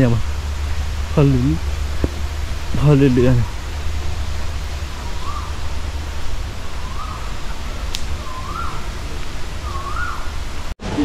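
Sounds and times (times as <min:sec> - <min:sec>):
rushing noise with low rumble: 0:00.0 - 0:11.0
bird whistled call: 0:04.3 - 0:10.5.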